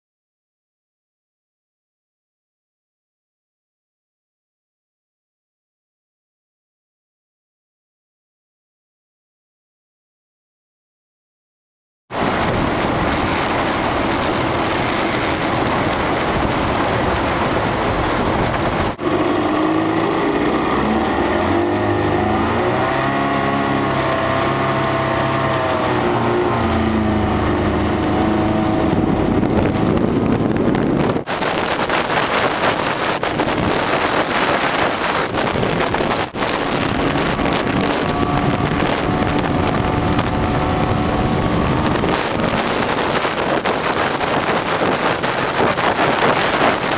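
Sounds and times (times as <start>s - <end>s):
outboard motor running hard: 12.1s - 46.9s
wind buffeting microphone: 12.1s - 46.9s.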